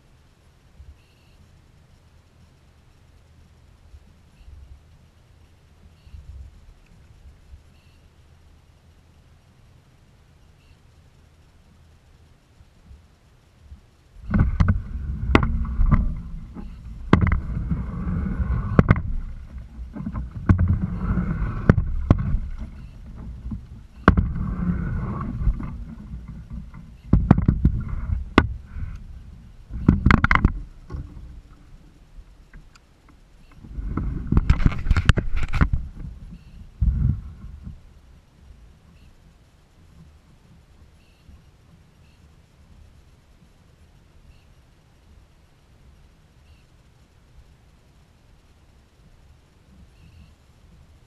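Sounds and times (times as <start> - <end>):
water washing against hull: 13.7 - 41.9
paddle strokes in water: 14.2 - 38.0
paddle knocking against kayak: 14.3 - 31.6.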